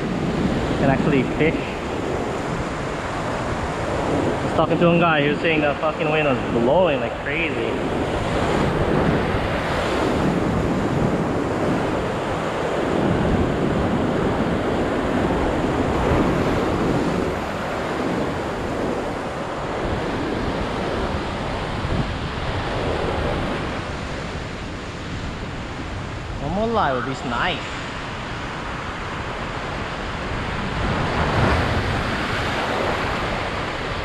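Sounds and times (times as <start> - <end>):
surf breaking on rocks: 0.0 - 34.0
wind on microphone: 0.0 - 34.0.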